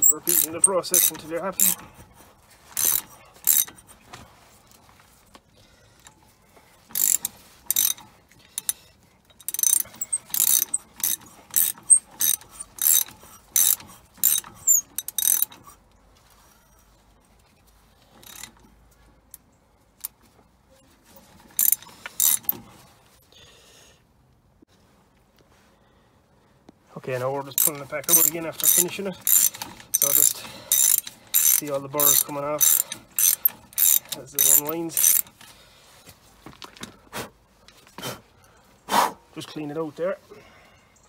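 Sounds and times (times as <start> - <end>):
ratchet clicking: 0.0 - 1.9, 2.8 - 3.9, 6.9 - 15.8, 18.2 - 18.7, 21.4 - 22.6, 27.6 - 35.5.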